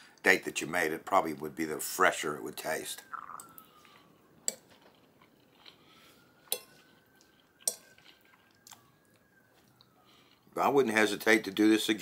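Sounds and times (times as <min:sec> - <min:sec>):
quiet chewing: 0:03.1 - 0:10.6.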